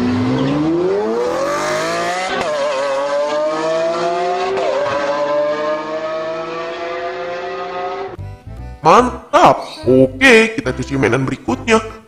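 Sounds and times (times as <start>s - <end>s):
sports car engines accelerating: 0.0s - 8.2s.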